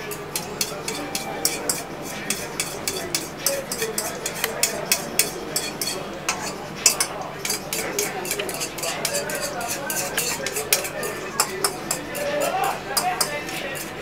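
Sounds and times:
metal utensil clicking against dish: 0:00.0 - 0:14.0.

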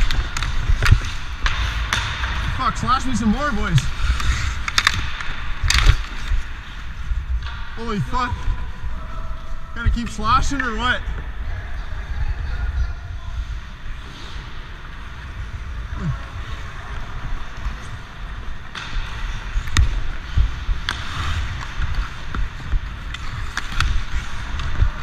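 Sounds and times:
hockey stick clacking on puck: 0:00.0 - 0:02.5, 0:03.7 - 0:06.4, 0:18.6 - 0:25.0
skates scraping on ice: 0:00.0 - 0:12.1, 0:12.7 - 0:25.0.

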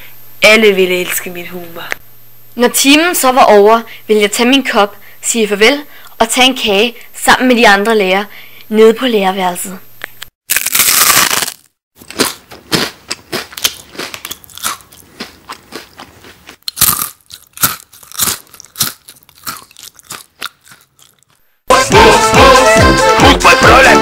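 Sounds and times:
person crunching food: 0:10.4 - 0:21.5
music: 0:21.7 - 0:24.0.

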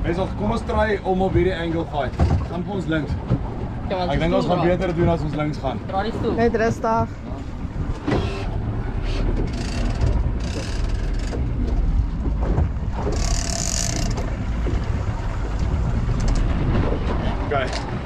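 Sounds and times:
boat engine rumble: 0:00.0 - 0:18.0
fishing reel ratcheting: 0:09.5 - 0:11.4, 0:13.1 - 0:14.2.

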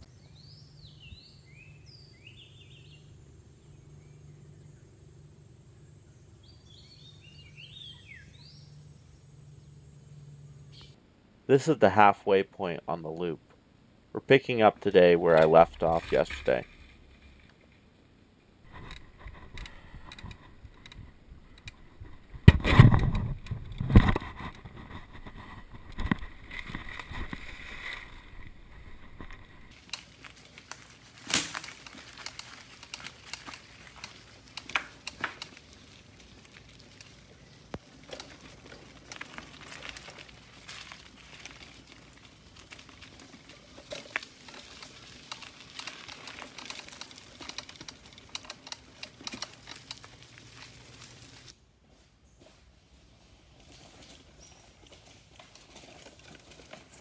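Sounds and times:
bike rattling and clunking: 0:15.3 - 0:17.9, 0:18.7 - 0:51.5, 0:53.5 - 0:57.0
tyres crunching on dry leaves: 0:24.1 - 0:51.5.

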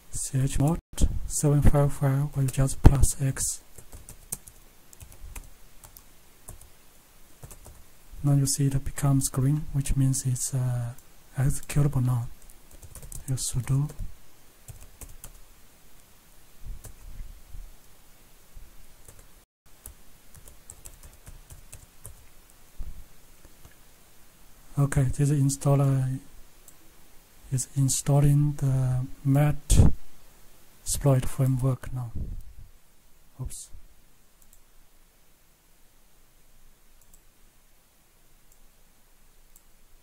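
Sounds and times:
keyboard keys typing: 0:03.8 - 0:06.7, 0:07.4 - 0:07.8, 0:12.4 - 0:14.0, 0:14.7 - 0:15.4, 0:19.1 - 0:22.3
computer mouse clicks: 0:37.0 - 0:37.2.

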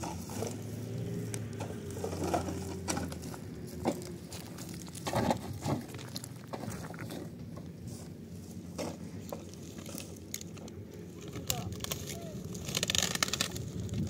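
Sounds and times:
footsteps on gravel: 0:00.0 - 0:10.2.

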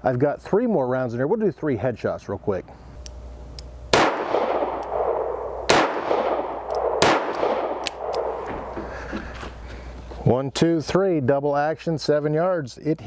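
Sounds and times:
revolver shots with echo: 0:03.9 - 0:08.7.

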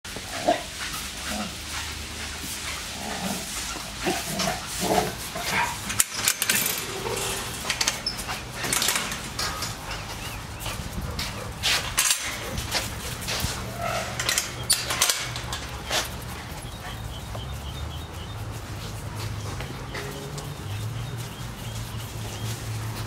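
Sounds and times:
scuffling and rustling: 0:00.1 - 0:23.0
dogs growling: 0:00.2 - 0:23.0.

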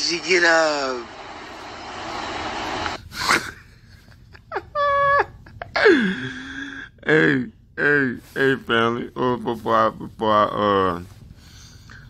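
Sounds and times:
man sobbing: 0:03.0 - 0:11.1.

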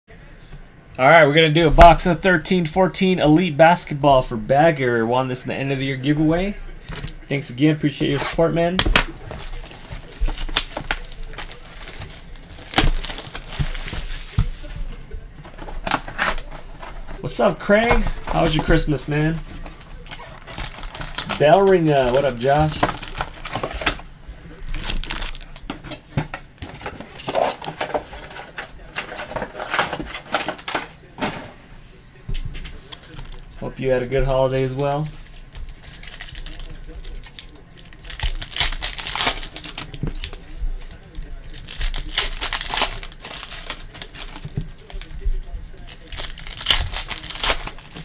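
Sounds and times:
plastic wrap crinkling: 0:08.1 - 0:31.2, 0:32.8 - 0:48.0.

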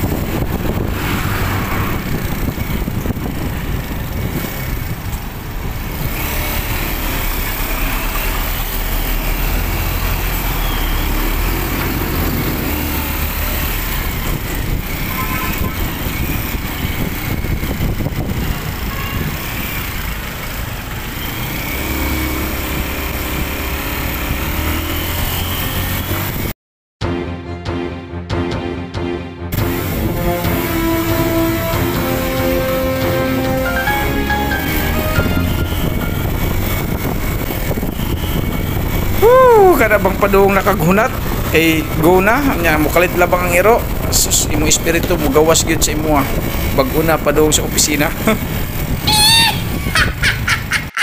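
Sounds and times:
motorcycle engine drone: 0:00.0 - 0:26.5, 0:29.5 - 0:50.5
wind and road noise: 0:00.0 - 0:26.6, 0:29.5 - 0:51.0
music: 0:27.0 - 0:37.0.

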